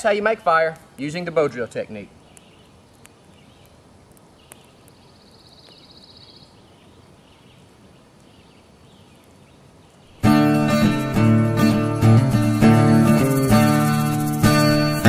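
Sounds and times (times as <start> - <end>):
campfire crackling: 0.0 - 15.0
faint outdoor ambience: 0.0 - 15.0
high-pitched animal trill: 12.3 - 15.0.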